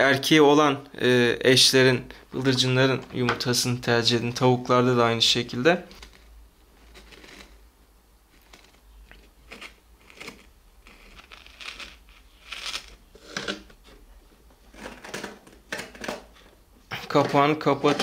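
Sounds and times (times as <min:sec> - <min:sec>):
crinkling and crunching handling: 0:05.8 - 0:07.7, 0:08.3 - 0:18.0.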